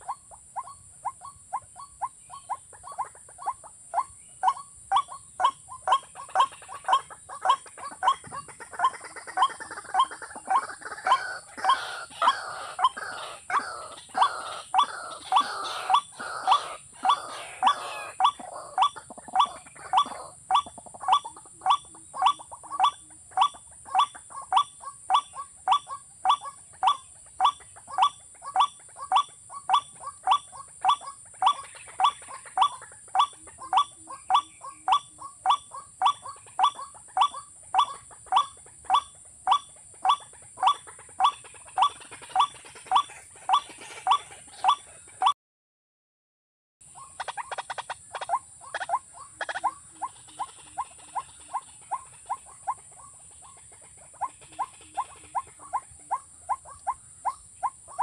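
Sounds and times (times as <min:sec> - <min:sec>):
recorded bird call from speaker: 0:00.0 - 0:45.4.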